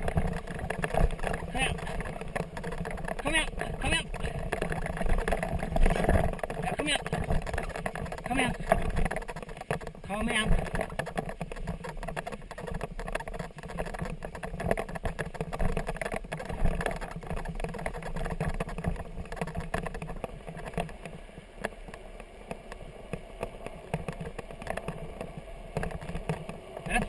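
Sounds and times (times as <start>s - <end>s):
frame rattling and knocking: 0.0s - 20.9s
wheels rumbling over grass: 0.0s - 27.0s.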